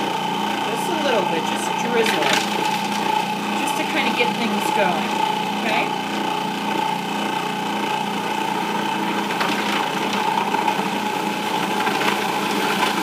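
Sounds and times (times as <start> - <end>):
food processor motor chopping: 0.0 - 13.0.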